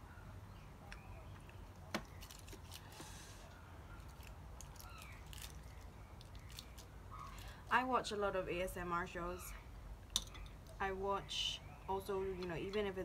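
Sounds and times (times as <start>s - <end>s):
dried seaweed sheets crackling: 2.1s - 7.9s.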